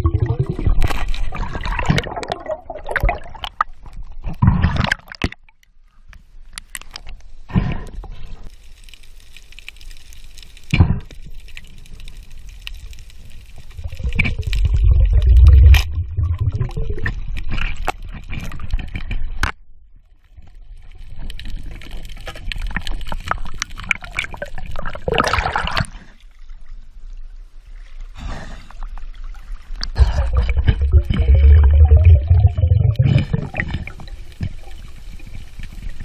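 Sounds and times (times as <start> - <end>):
water gurgling and sloshing: 0.0 - 5.8, 12.7 - 36.0.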